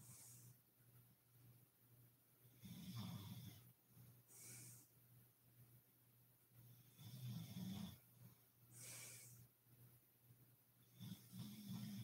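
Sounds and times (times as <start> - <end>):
woman snoring: 2.6 - 3.7, 6.9 - 8.0, 11.0 - 12.0
breathy exhale hiss: 4.3 - 5.0, 8.7 - 9.5.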